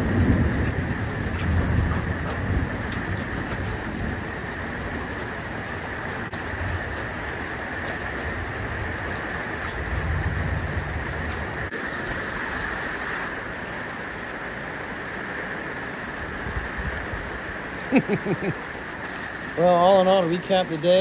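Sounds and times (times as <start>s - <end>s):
heavy rain pouring: 0.0s - 21.0s
person speaking: 19.5s - 21.0s.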